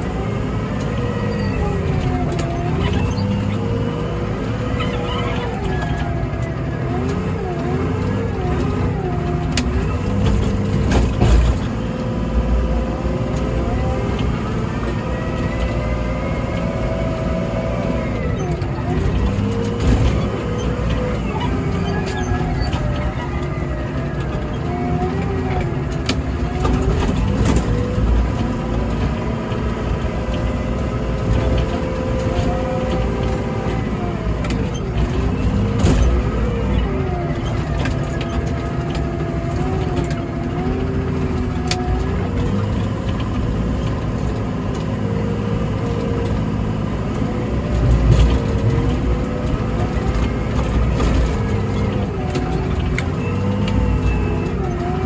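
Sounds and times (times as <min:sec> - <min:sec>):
diesel engine revving under load: 0:00.0 - 0:55.0.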